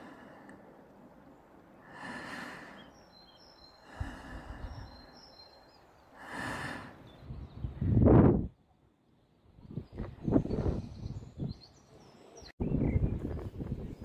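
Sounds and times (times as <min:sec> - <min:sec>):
person breathing heavily: 0:00.0 - 0:00.9, 0:01.8 - 0:05.5, 0:06.1 - 0:07.1
faint bird chirps: 0:02.5 - 0:07.8
wind buffeting microphone: 0:07.0 - 0:08.6, 0:09.5 - 0:11.8, 0:12.6 - 0:14.0.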